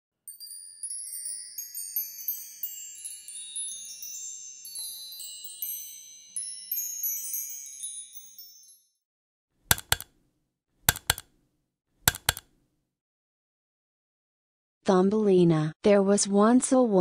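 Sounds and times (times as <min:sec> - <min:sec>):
high tinkling chimes: 0:00.3 - 0:09.0.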